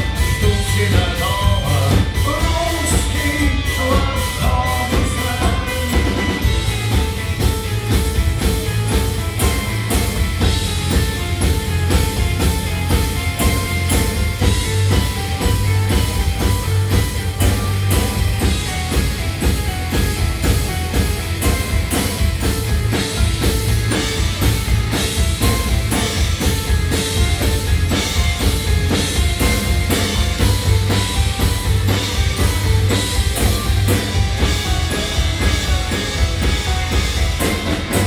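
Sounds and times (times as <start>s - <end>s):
rock band playing: 0.0s - 38.0s
man singing: 0.2s - 6.5s.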